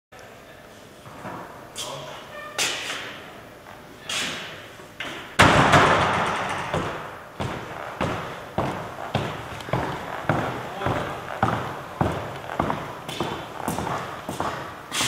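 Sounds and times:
heavy wooden door slamming: 0:05.4 - 0:07.1
door knocking: 0:05.7 - 0:08.2
footsteps: 0:06.4 - 0:15.0.

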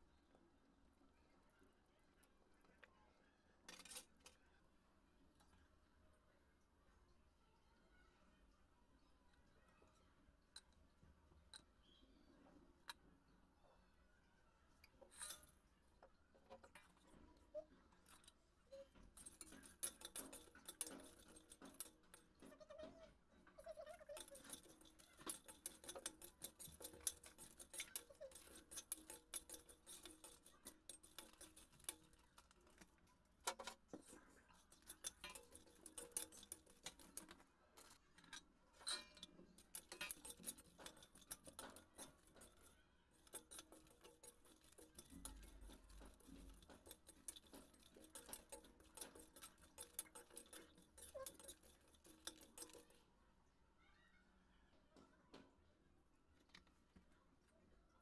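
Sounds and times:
steel spoon scraping metal pan: 0:19.0 - 0:22.5, 0:23.6 - 0:32.8, 0:33.5 - 0:38.0, 0:38.8 - 0:53.0.

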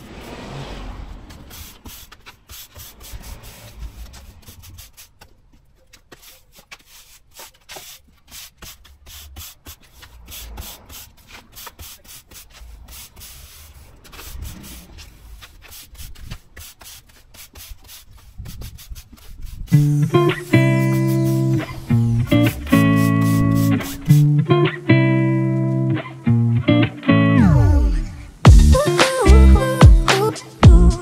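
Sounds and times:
stiff broom sweeping sand: 0:00.0 - 0:05.3, 0:06.0 - 0:24.8.

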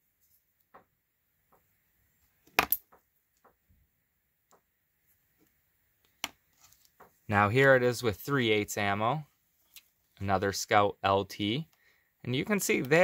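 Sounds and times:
magnet snapping onto steel ball: 0:02.5 - 0:02.9.

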